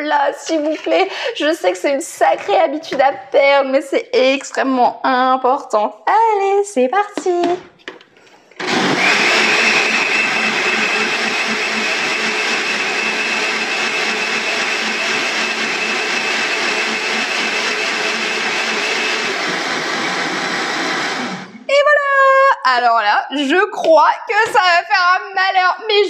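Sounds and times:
blender motor whine: 8.6 - 21.6.

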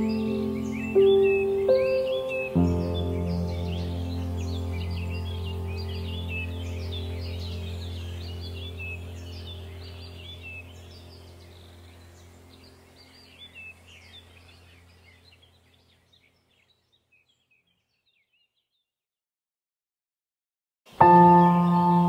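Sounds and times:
birds chirping: 0.0 - 18.9, 20.9 - 22.0
low hum: 2.6 - 15.7.

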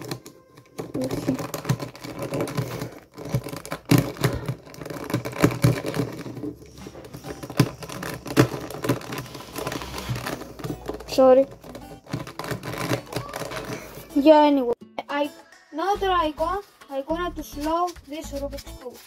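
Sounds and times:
puzzle cube clicking: 0.0 - 13.9.

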